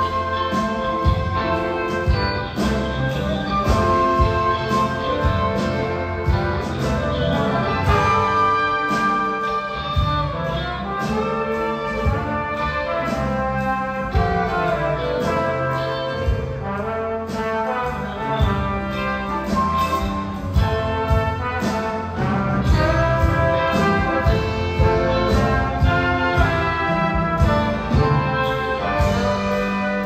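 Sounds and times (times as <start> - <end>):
brass section: 0.0 - 30.0
rock band and orchestra playing: 0.0 - 30.0.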